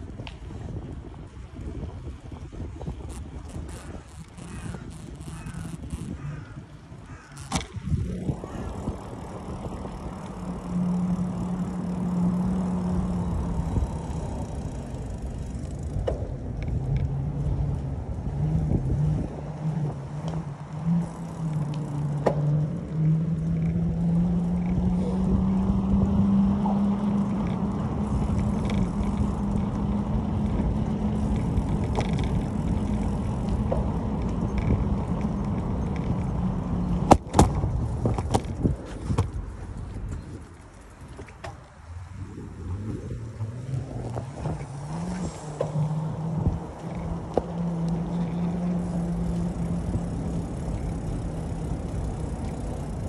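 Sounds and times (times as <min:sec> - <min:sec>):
bicycle tyres on wet pavement: 0:00.0 - 0:53.0
low hum: 0:00.0 - 0:53.0
wind on microphone: 0:00.0 - 0:53.0.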